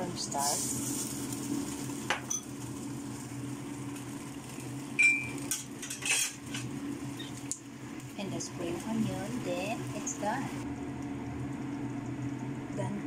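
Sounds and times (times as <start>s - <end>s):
steady low hum: 0.0s - 13.0s
metal utensil scraping a wok: 5.8s - 6.7s.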